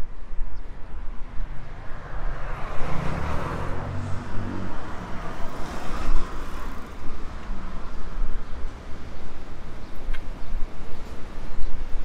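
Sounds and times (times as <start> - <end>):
traffic background: 0.0 - 12.0
car driving past: 1.8 - 7.0.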